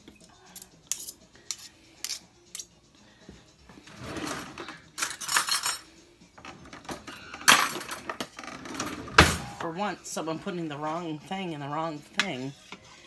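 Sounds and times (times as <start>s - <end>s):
utensils rattling in drawer: 3.9s - 9.4s.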